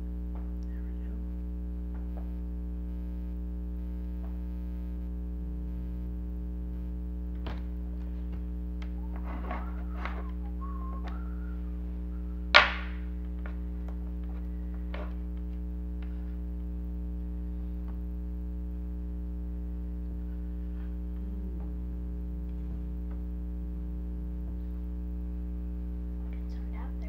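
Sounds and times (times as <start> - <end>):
low electrical hum: 0.0 - 27.0
sharp knock: 12.6 - 13.0.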